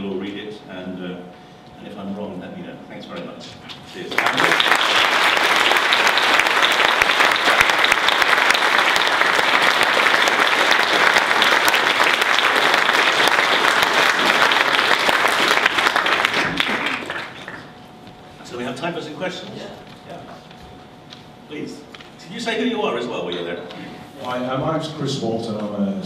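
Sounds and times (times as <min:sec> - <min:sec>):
audience clapping: 0:04.1 - 0:17.8.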